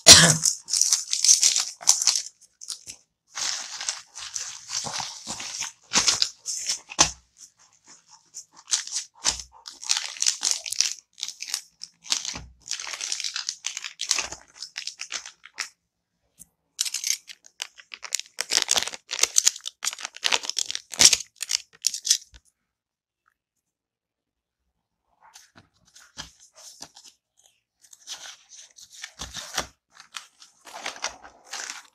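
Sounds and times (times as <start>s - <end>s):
plastic packaging crinkling: 0.0s - 7.2s, 7.8s - 15.7s, 16.8s - 22.4s, 27.9s - 31.9s.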